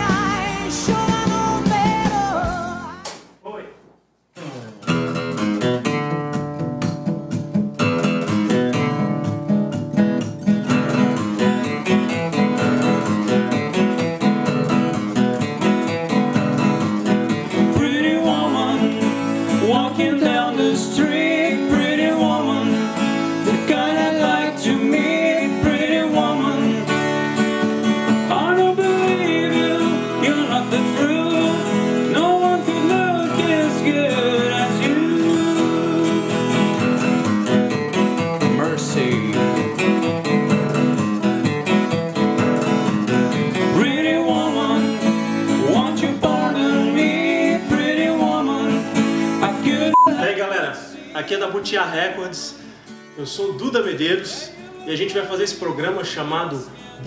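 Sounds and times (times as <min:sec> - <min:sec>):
acoustic guitars strummed and picked: 0:00.0 - 0:03.1, 0:04.4 - 0:57.0
man singing: 0:17.5 - 0:27.0, 0:28.3 - 0:36.7, 0:38.5 - 0:39.7, 0:43.7 - 0:52.6, 0:54.0 - 0:56.6.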